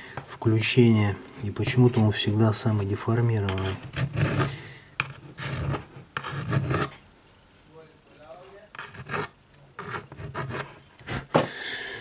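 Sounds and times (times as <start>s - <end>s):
fingers scraping tablet frame: 3.4s - 7.0s, 8.7s - 11.3s.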